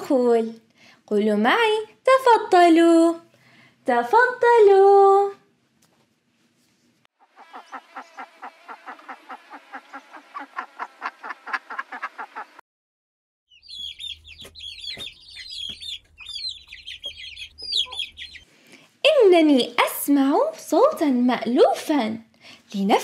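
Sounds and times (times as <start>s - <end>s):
hens clucking: 7.2s - 12.6s, 14.0s - 18.5s
chicks peeping: 13.5s - 18.5s.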